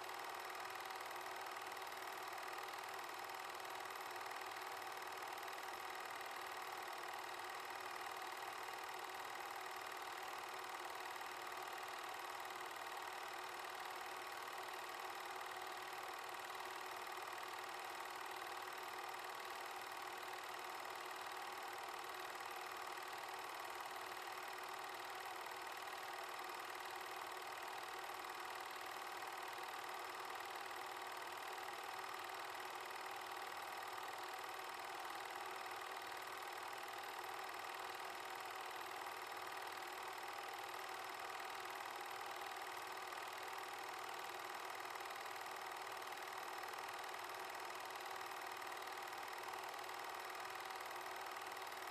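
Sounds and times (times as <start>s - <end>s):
film projector whirring: 0.0s - 51.9s.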